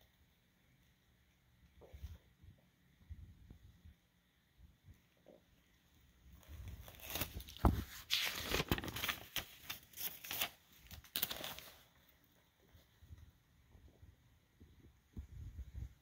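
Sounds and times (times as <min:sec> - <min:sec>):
paper pages rustling: 0:06.4 - 0:12.1.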